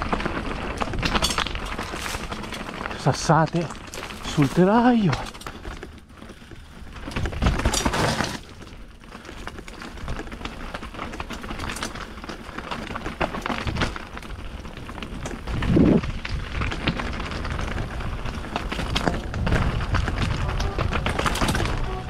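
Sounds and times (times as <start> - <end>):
bike tyres crunching over stones: 0.0 - 22.0
rattle of stones striking frame: 0.0 - 22.0.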